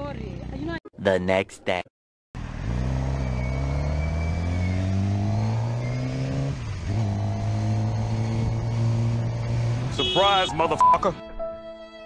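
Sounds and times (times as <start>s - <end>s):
motorcycle engine accelerating: 2.4s - 10.0s.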